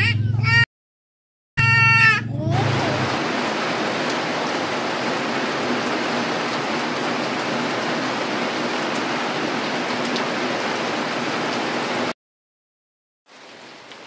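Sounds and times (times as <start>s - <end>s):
rain on metal roof and leaves: 1.6s - 12.2s, 13.3s - 14.0s.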